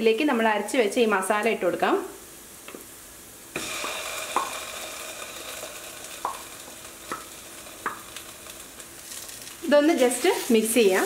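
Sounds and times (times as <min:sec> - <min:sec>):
paste sizzling in hot ghee: 0:03.4 - 0:11.0.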